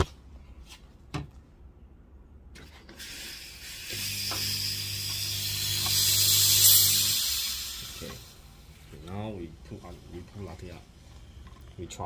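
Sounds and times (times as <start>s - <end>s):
espresso machine hiss: 2.9s - 8.7s.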